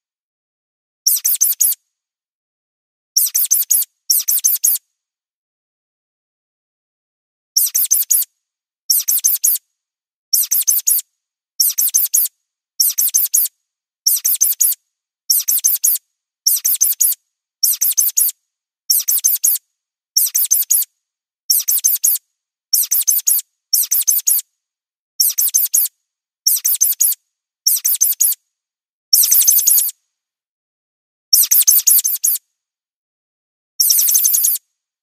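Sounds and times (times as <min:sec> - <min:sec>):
mouse squeaks: 0:01.1 - 0:01.8, 0:03.2 - 0:04.8, 0:07.6 - 0:08.3, 0:08.9 - 0:09.6, 0:10.3 - 0:11.0, 0:11.6 - 0:13.5, 0:14.1 - 0:19.6, 0:20.2 - 0:20.9, 0:21.5 - 0:24.5, 0:25.2 - 0:25.9, 0:26.5 - 0:28.4, 0:29.1 - 0:30.0, 0:31.3 - 0:32.4, 0:33.8 - 0:34.6.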